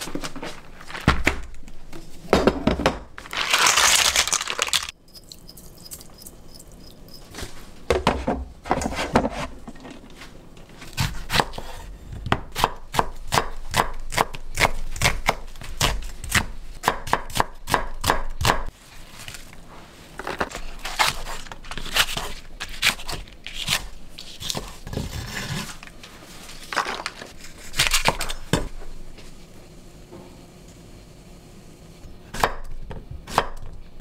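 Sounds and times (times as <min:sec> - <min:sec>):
knife cutting green onion: 0:10.8 - 0:18.7.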